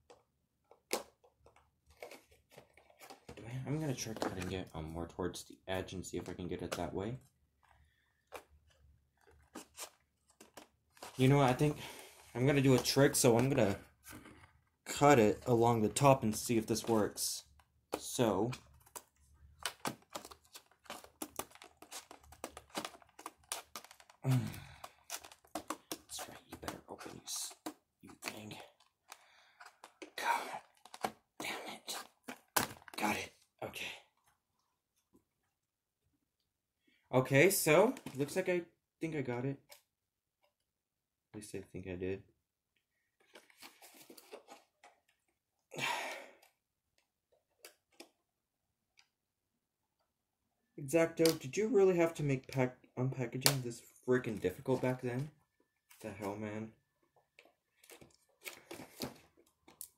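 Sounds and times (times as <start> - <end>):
plastic packaging crackling: 18.7 - 26.6.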